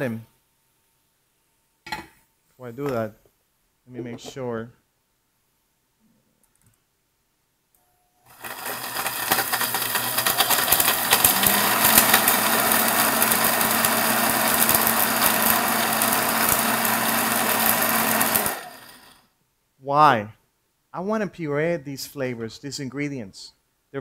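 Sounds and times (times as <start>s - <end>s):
blender grinding seeds: 8.3s - 19.3s
seeds rattling in blender jar: 8.4s - 18.5s.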